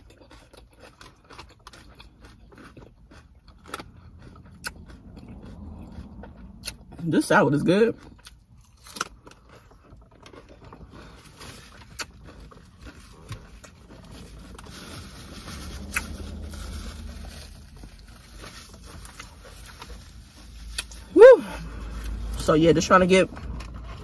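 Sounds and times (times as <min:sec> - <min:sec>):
person chewing salad: 0:00.0 - 0:22.5, 0:23.3 - 0:24.0
low rumble: 0:03.8 - 0:07.0, 0:13.7 - 0:24.0.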